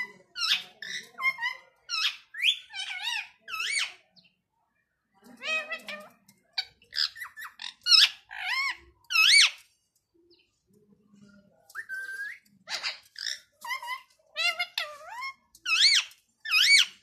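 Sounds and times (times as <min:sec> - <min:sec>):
parakeet chirping and squawking: 0:00.0 - 0:04.0, 0:05.3 - 0:09.6, 0:12.6 - 0:17.0.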